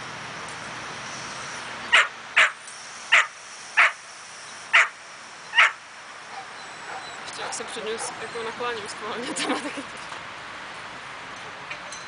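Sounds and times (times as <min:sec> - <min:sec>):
dog barking: 0:05.6 - 0:08.2.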